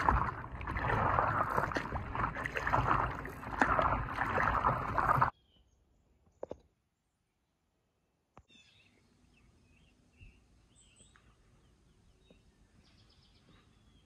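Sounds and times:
faint bird chirps: 0:05.3 - 0:07.3, 0:08.5 - 0:14.0.

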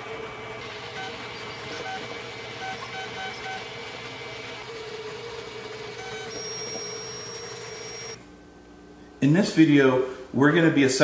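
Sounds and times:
stepper motors whining: 0:00.0 - 0:08.2.

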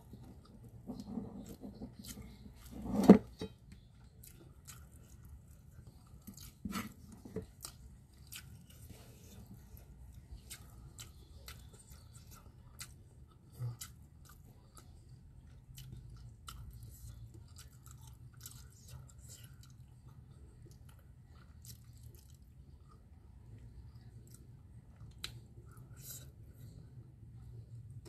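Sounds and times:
person chewing with mouth clicks: 0:10.2 - 0:23.0.

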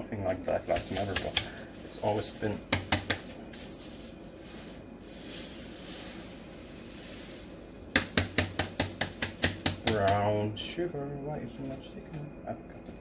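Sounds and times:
sharp taps on pan: 0:02.6 - 0:03.3, 0:07.9 - 0:10.3
sugar sliding in metal pan: 0:03.4 - 0:07.7.

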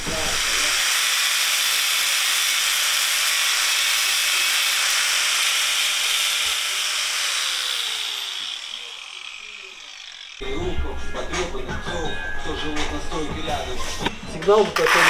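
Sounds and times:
angle grinder cutting tile: 0:00.0 - 0:10.4, 0:14.8 - 0:15.0.

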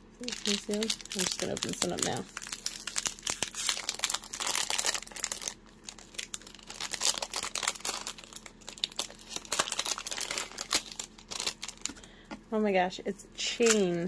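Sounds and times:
plastic bag crinkling: 0:00.2 - 0:12.2.

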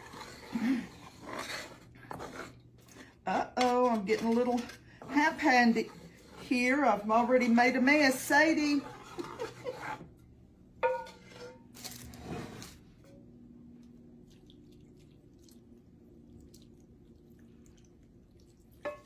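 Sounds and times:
wooden spoon scraping a pan: 0:00.0 - 0:13.2
pan knocking: 0:10.8 - 0:11.5.

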